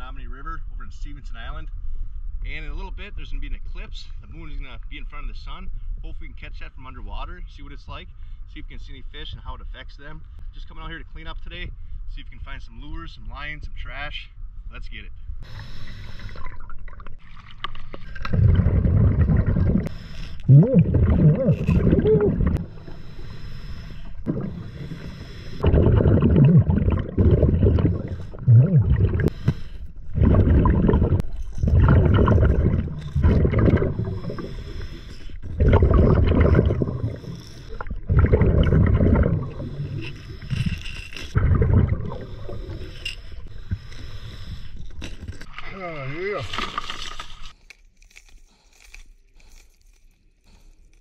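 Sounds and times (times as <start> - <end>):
diver inhaling: 15.4 - 16.6, 18.0 - 45.3
exhaled breath bubbling underwater: 17.8 - 45.2.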